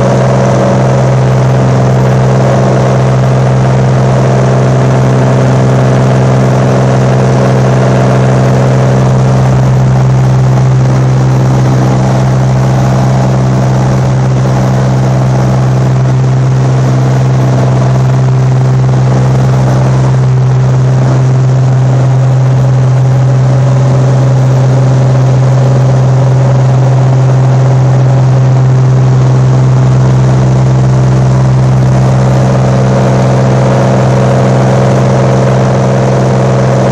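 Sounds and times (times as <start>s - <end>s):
propeller engine humming in cabin: 0.0s - 36.9s.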